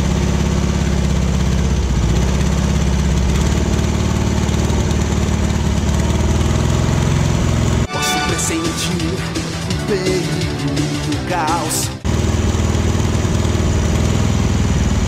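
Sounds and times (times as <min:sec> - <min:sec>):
car engine idling: 0:00.0 - 0:07.9, 0:12.0 - 0:15.0.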